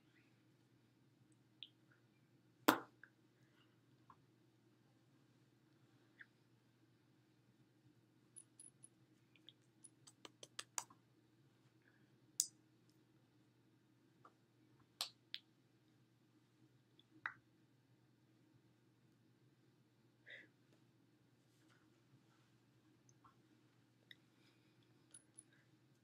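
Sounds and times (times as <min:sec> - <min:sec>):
low room hum: 0:00.0 - 0:26.0
hands clicking and tapping: 0:10.0 - 0:11.0.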